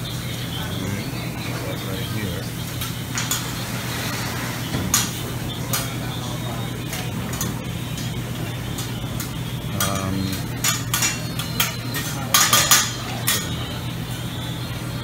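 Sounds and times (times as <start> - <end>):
steady low hum: 0.0 - 15.0
dishes and cutlery clinking: 2.7 - 13.8.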